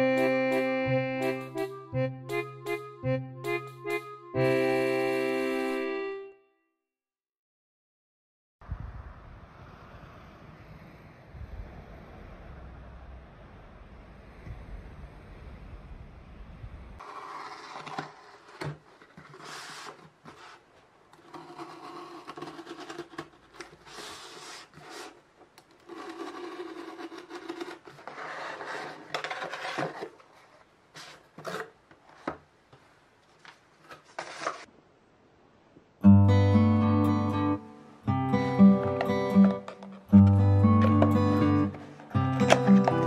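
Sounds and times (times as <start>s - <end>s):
acoustic guitar music: 0.0s - 6.3s, 36.0s - 43.0s
cardboard rustling: 17.0s - 25.2s, 25.8s - 32.5s, 33.2s - 34.7s
box cutter slitting packing tape: 21.2s - 25.2s, 25.8s - 28.6s.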